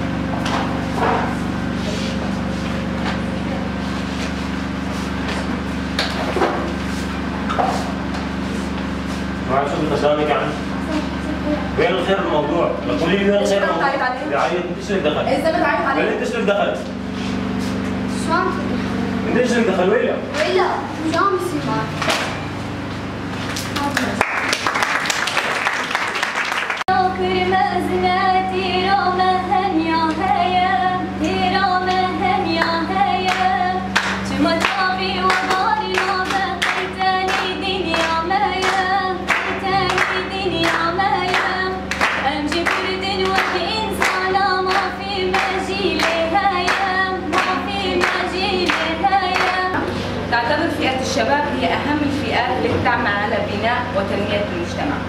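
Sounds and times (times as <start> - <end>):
group applause: 23.5 - 26.9, 33.2 - 49.8
hands clapping in time: 23.5 - 26.9, 32.6 - 49.7
woman singing: 26.9 - 53.2.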